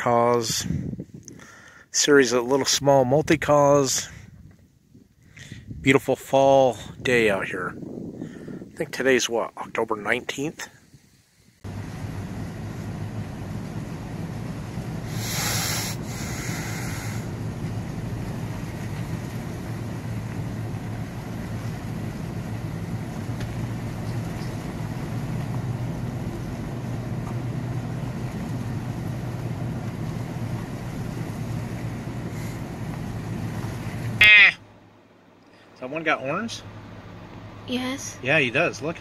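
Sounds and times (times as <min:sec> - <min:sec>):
vehicle rumbling from inside cab: 0:00.0 - 0:39.0
loud hissing rush: 0:15.0 - 0:17.5.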